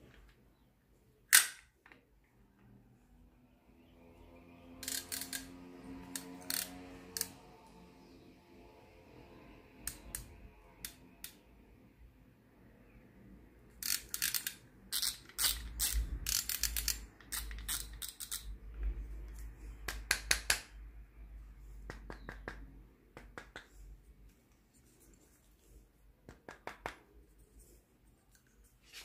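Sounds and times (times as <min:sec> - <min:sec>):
fishing reel clicking: 0:04.8 - 0:05.5, 0:06.1 - 0:07.4, 0:13.8 - 0:18.5.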